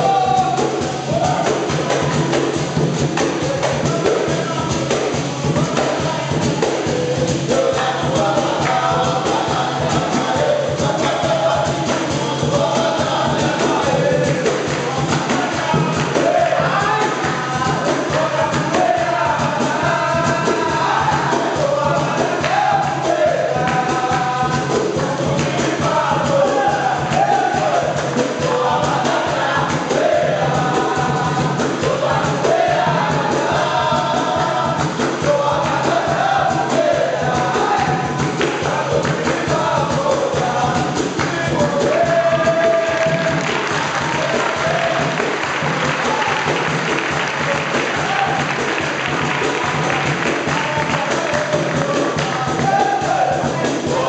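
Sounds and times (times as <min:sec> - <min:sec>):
hand clapping: 0:00.0 - 0:31.0, 0:37.6 - 0:53.8
hand drum: 0:00.0 - 0:54.0
men singing in a group: 0:00.0 - 0:54.0.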